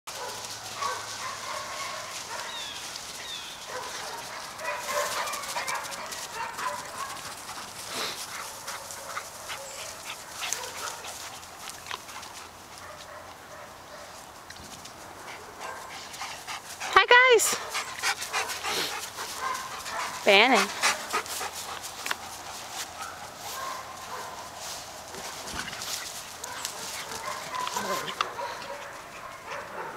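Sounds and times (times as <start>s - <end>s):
dogs yipping and barking: 0.1s - 11.3s, 15.3s - 29.9s.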